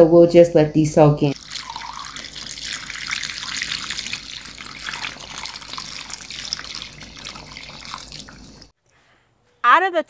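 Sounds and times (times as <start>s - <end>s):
water pouring into a pot: 1.3s - 8.7s.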